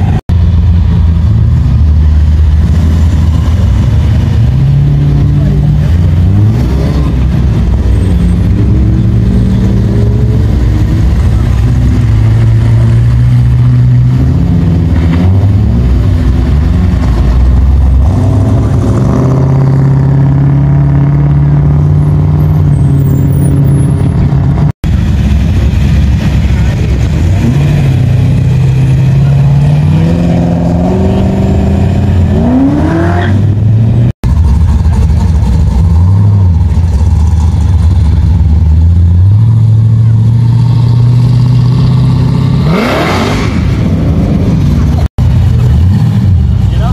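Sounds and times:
muscle car engines revving: 0.0s - 46.9s.

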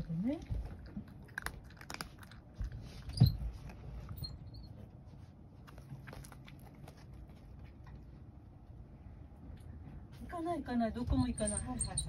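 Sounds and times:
cat crunching dry kibble: 0.0s - 2.8s.

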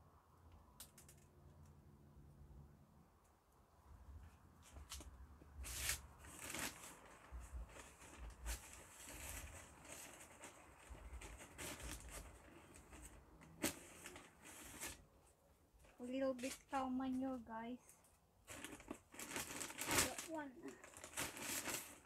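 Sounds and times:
plastic bags rustling and crinkling: 4.6s - 22.0s.

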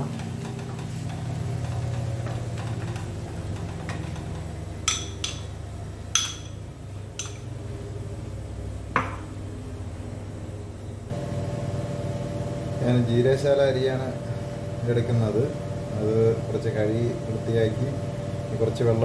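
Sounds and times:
steady low hum: 0.0s - 19.0s
crockery clinking: 6.2s - 6.6s.

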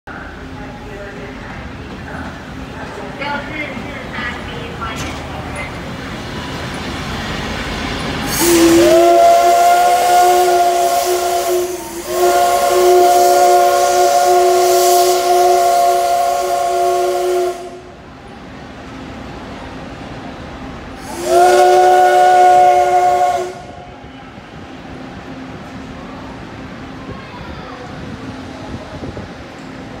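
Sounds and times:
train rumble: 0.1s - 30.0s
steam hissing: 6.0s - 17.8s, 21.0s - 23.8s
steam whistle chord: 8.3s - 17.9s, 21.0s - 23.8s.

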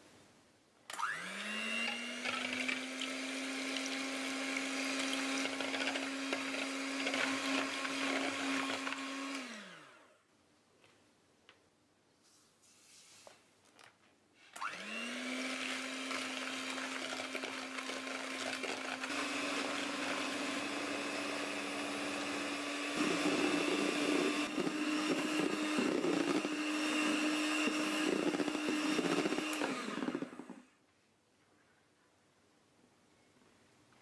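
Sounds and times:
electric hand mixer whining: 0.9s - 10.2s, 14.6s - 30.8s.

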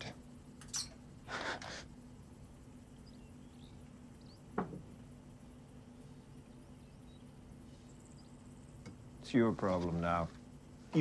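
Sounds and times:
low steady hum: 0.0s - 11.0s
faint high chirps: 2.2s - 9.4s.

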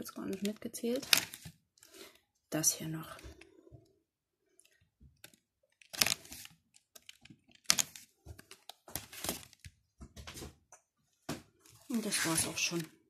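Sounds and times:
paper pages rustling: 0.3s - 1.6s, 5.2s - 10.5s, 11.6s - 12.9s.

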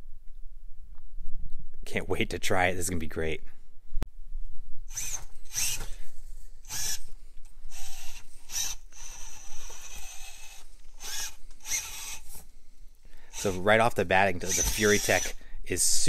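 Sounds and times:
electric motor whirring: 4.9s - 6.0s, 6.6s - 12.5s, 13.3s - 13.7s, 14.4s - 15.4s.

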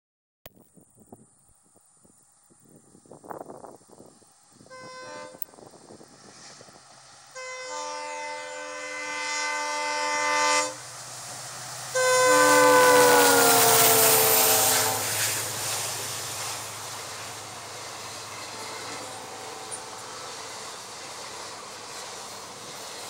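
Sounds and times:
train engine and coaches rumbling: 0.6s - 23.0s
locomotive horn: 4.6s - 5.6s, 7.3s - 10.9s, 11.9s - 15.4s, 18.3s - 20.6s.

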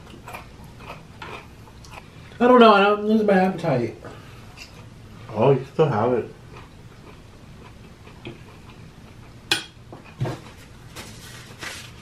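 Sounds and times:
paper napkin rustling: 10.3s - 12.0s.

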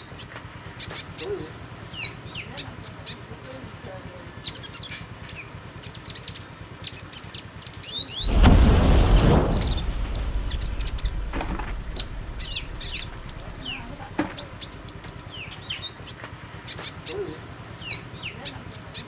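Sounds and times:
whoosh sound effect: 8.1s - 15.4s
bird chirping: 11.8s - 17.0s.

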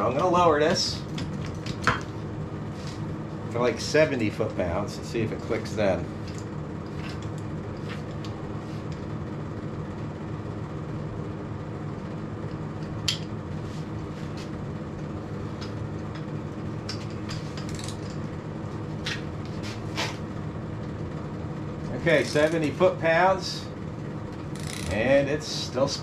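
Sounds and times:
steady low hum: 0.0s - 26.0s
torque wrench clicks and clinks: 17.6s - 18.1s, 24.6s - 25.0s.

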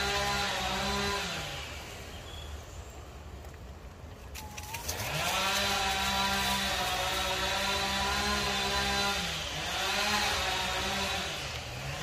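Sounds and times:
motor drone winding down and up: 4.8s - 12.0s.

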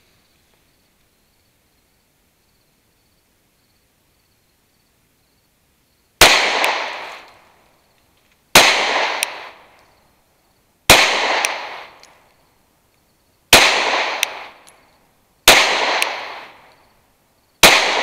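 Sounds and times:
pistol shots: 6.2s - 7.3s, 8.5s - 9.6s, 10.9s - 12.1s, 13.5s - 14.7s, 15.4s - 16.7s, 17.6s - 18.0s.

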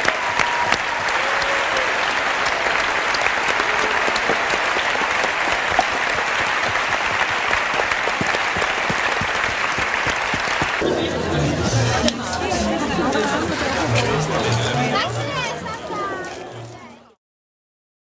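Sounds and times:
audience applauding: 0.0s - 10.8s.

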